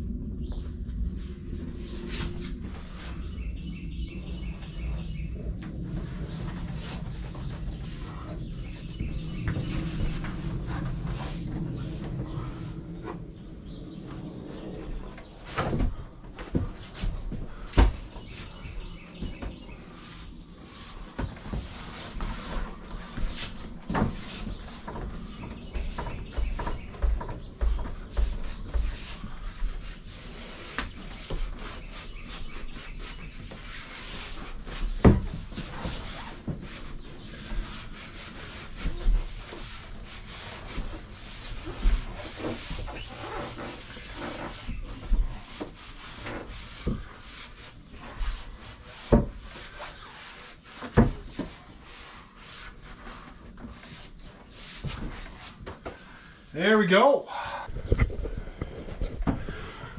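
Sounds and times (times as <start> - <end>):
hands scuffing wall panels: 1.2 - 3.4, 5.9 - 13.2, 14.8 - 56.1
knocks and thumps: 15.4 - 19.7, 21.1 - 29.8, 57.7 - 59.8.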